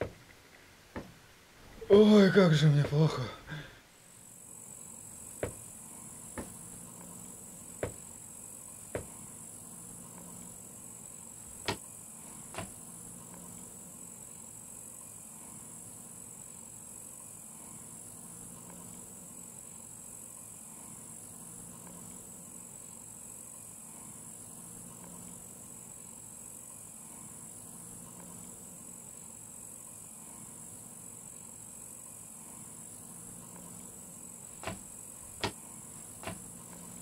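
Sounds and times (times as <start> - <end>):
insects chirring: 0.0 - 37.0
sharp knocks: 0.9 - 1.2, 5.4 - 5.7, 7.8 - 8.0, 8.9 - 9.1, 12.5 - 12.7, 34.6 - 34.8, 36.2 - 36.4.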